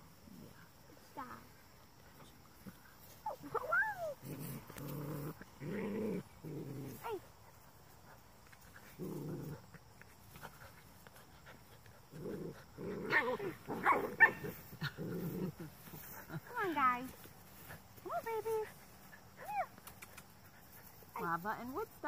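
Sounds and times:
puppy growling: 0:04.0 - 0:07.3, 0:08.7 - 0:09.9, 0:12.0 - 0:16.0.

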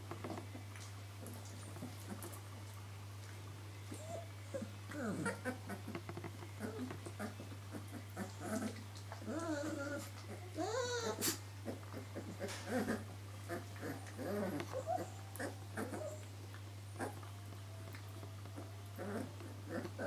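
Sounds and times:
steady low hum: 0:00.0 - 0:20.0
puppies whining and squeaking: 0:03.9 - 0:06.0, 0:06.6 - 0:16.4, 0:17.0 - 0:20.0
small clicks and rustles: 0:05.7 - 0:07.3.

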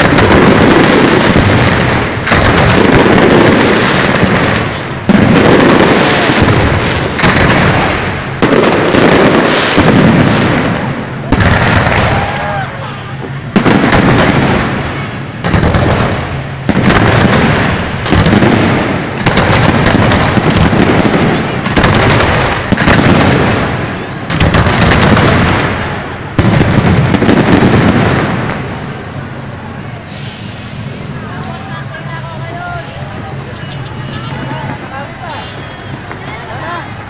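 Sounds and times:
firework shells bursting: 0:00.0 - 0:12.4, 0:13.6 - 0:29.5.

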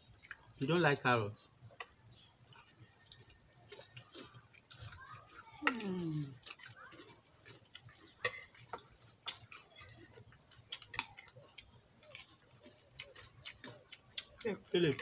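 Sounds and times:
spoons clinking on a plate: 0:08.1 - 0:08.8.

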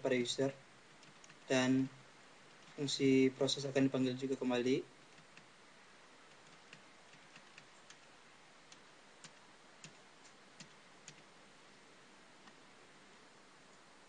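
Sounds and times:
low hiss: 0:00.0 - 0:14.0
computer keyboard clicks: 0:01.0 - 0:01.4, 0:06.3 - 0:08.1, 0:08.7 - 0:11.2.

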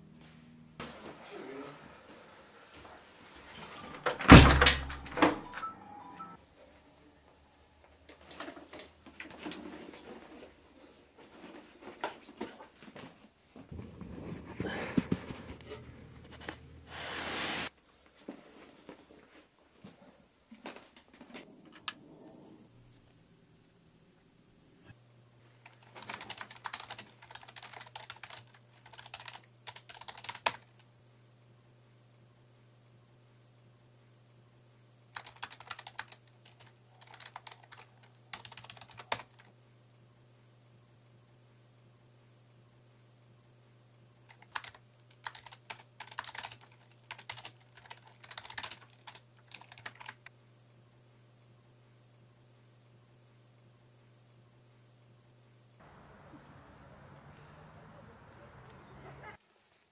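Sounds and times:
sharp hiss: 0:16.9 - 0:17.7.

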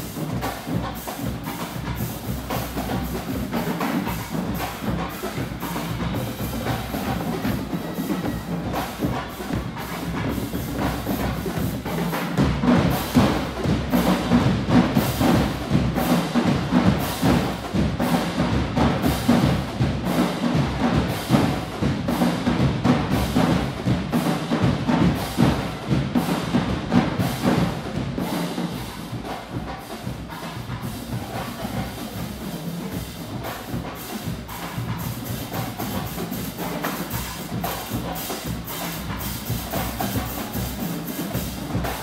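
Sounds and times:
drums beating: 0:00.0 - 0:42.0
marching band playing: 0:00.0 - 0:42.0.

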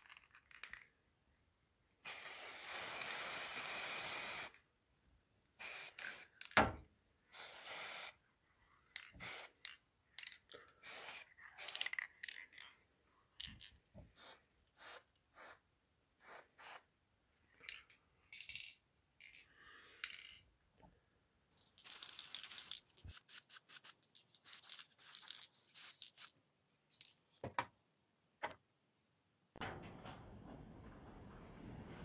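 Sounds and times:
spray paint can hissing: 0:02.0 - 0:04.6, 0:05.6 - 0:06.4, 0:07.3 - 0:08.2, 0:09.2 - 0:09.7, 0:10.8 - 0:12.0, 0:14.2 - 0:15.6, 0:16.2 - 0:16.8, 0:21.8 - 0:26.3.

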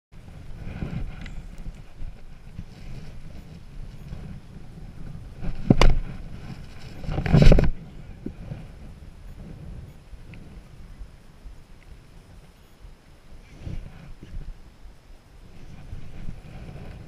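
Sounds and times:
wind: 0:00.1 - 0:17.0
rustling thud: 0:05.4 - 0:07.8.

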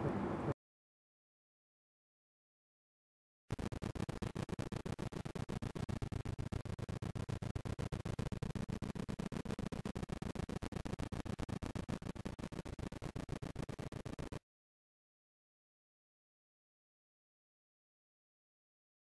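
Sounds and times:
low stuttering rumble: 0:03.5 - 0:14.4.

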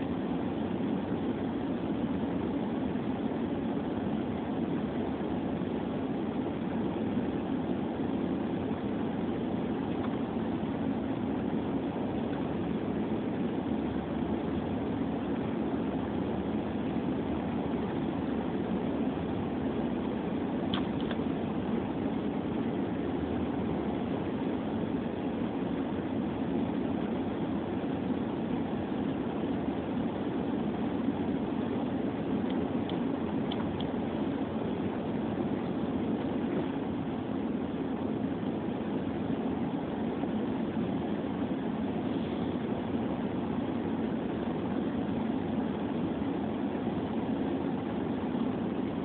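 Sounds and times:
car cabin rumble: 0:06.6 - 0:39.1.

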